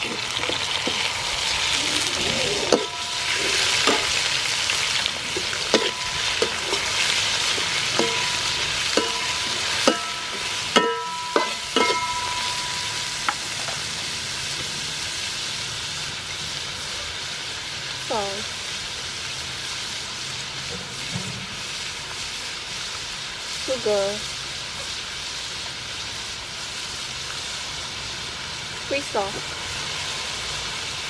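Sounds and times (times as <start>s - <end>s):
metal spatula scraping a wok: 0.0s - 13.9s
scallops sizzling in hot oil: 0.0s - 31.0s.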